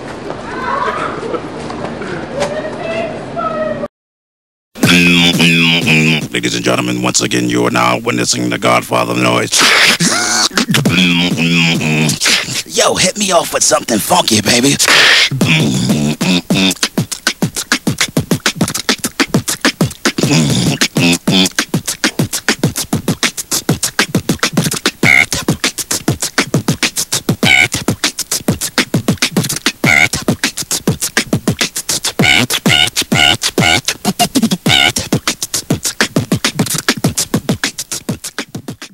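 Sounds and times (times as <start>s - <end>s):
short pitched vocal sounds: 4.8s - 6.7s, 9.5s - 12.8s, 14.8s - 28.0s, 29.3s - 37.0s
beatboxing: 4.8s - 38.9s.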